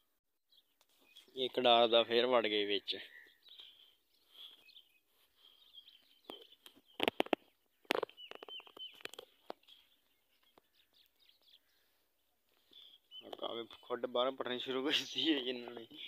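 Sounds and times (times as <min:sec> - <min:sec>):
small birds chirping: 0:00.5 - 0:16.0
sharp clicks and crackles: 0:06.3 - 0:09.6.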